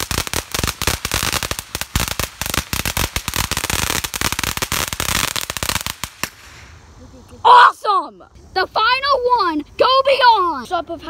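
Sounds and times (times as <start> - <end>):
firework fountain crackling: 0.0 - 7.2.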